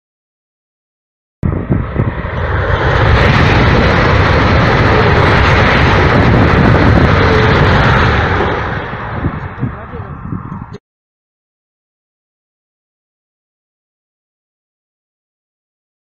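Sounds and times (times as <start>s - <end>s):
high-speed train rushing past: 1.4s - 10.8s.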